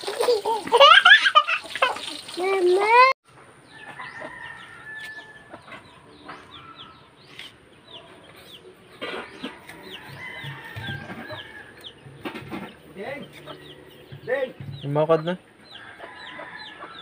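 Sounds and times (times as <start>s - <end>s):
chickens clucking: 3.4s - 17.0s.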